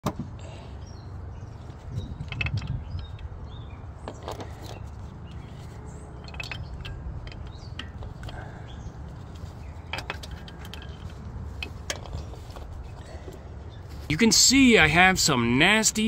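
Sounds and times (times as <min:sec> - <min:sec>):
steady low rumble: 0:00.3 - 0:16.0
metallic clicks and clinks: 0:06.1 - 0:08.5.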